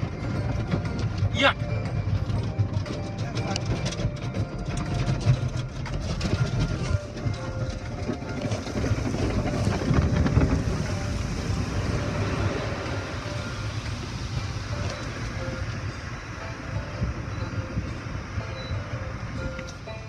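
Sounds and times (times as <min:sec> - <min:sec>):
car wash brushes slapping car: 0:02.8 - 0:15.8.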